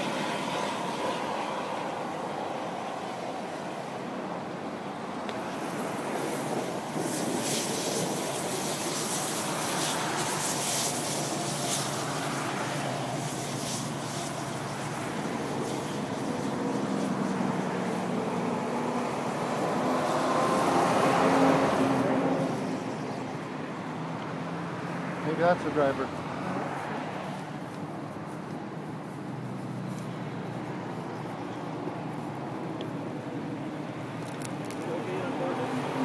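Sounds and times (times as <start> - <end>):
vehicle passing close by: 0.0 - 4.4, 5.0 - 36.0
highway traffic noise: 0.0 - 36.0
sharp crackling clicks: 34.2 - 34.9.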